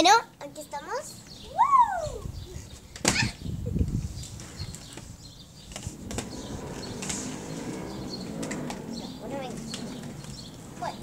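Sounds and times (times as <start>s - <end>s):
skate wheels rolling rumble: 2.8s - 11.0s
skate thump on tiles: 2.9s - 3.3s, 5.7s - 7.8s.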